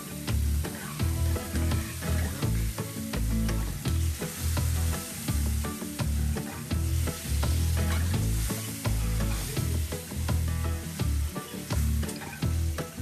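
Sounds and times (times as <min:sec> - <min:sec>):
frying sizzle: 0:00.0 - 0:13.0
spoon scraping metal pan: 0:07.8 - 0:08.2.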